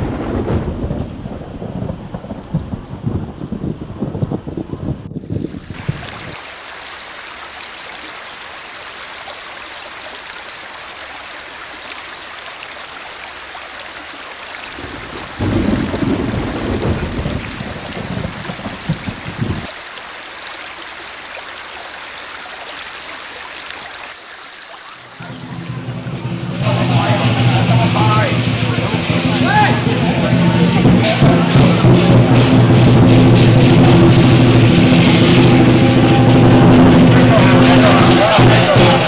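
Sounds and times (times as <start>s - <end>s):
rushing water: 0.0s - 39.0s
faint high chirps: 23.6s - 25.3s.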